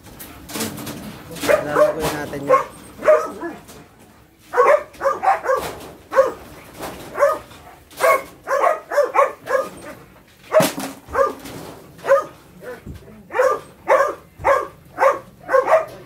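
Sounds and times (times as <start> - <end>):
dogs barking: 1.3 - 3.8, 4.4 - 16.0.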